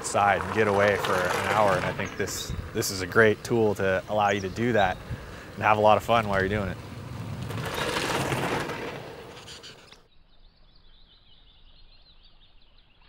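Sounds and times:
bicycle passing by: 0.0s - 10.0s
faint bird chirping: 9.3s - 13.0s.

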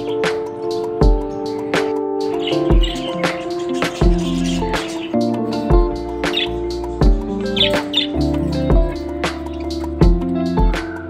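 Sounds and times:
background music with beat: 0.0s - 11.0s
budgerigar chirps: 2.3s - 5.3s, 7.3s - 8.7s.

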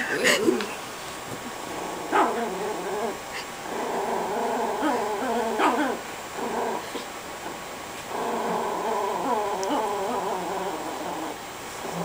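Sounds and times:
small dog growling: 1.6s - 12.0s.

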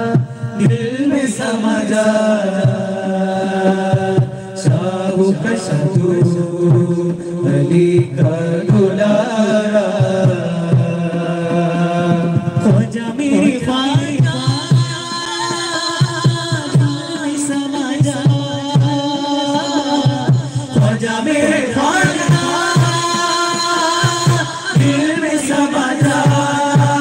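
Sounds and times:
men singing in held notes: 0.0s - 27.0s.

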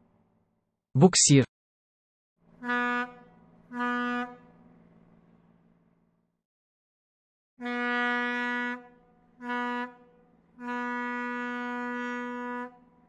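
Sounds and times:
tugboat horn blasts: 2.6s - 4.6s, 7.6s - 13.0s.

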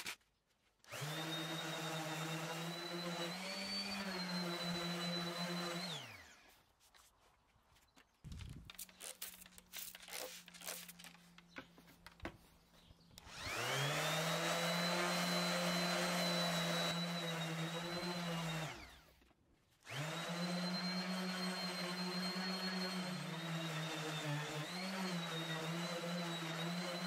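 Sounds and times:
orbital sander sanding wood: 0.9s - 6.8s, 8.8s - 11.9s, 13.2s - 19.2s, 19.8s - 27.0s.

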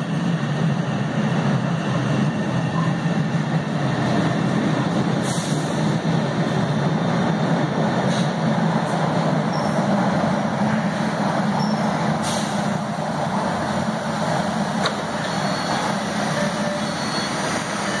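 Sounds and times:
subway train humming: 0.0s - 18.0s
air hiss: 12.2s - 12.7s.

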